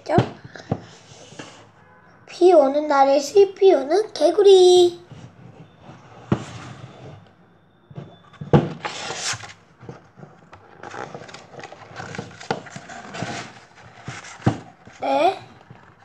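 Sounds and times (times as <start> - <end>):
book pages rustling: 8.0 - 16.0.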